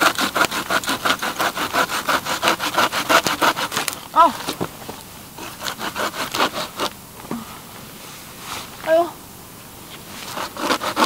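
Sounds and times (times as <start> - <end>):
hand saw cutting branch: 0.0 - 4.6, 5.4 - 6.9, 10.2 - 11.0.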